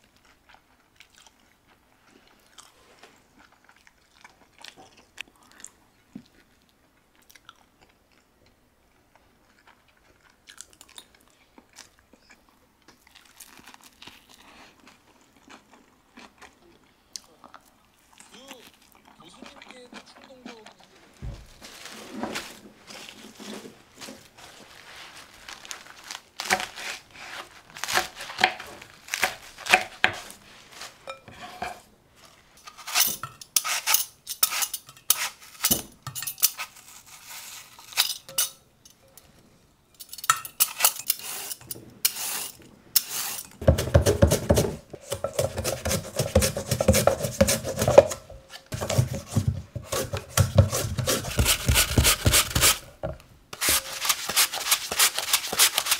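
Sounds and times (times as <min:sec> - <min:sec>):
vegetable peeler scraping apple: 0:32.6 - 0:35.7, 0:40.6 - 0:52.9, 0:53.6 - 0:55.9
lettuce clinking in steel bowls: 0:37.7 - 0:39.3, 0:40.0 - 0:42.2
carrot scraping on mandoline slicer: 0:41.1 - 0:52.9.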